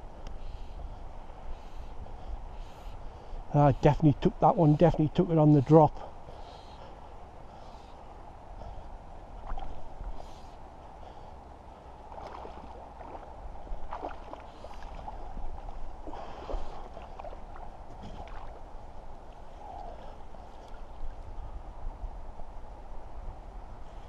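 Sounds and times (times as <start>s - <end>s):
fish splashing in water: 12.1s - 18.6s.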